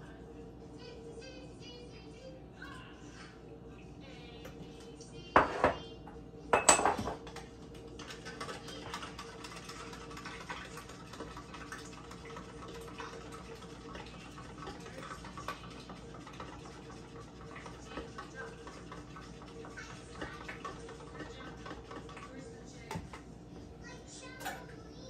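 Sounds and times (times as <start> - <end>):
kitchenware clattering: 5.3 - 5.9, 6.5 - 7.4, 24.3 - 24.8
metallic clanks of kitchenware: 6.6 - 7.2.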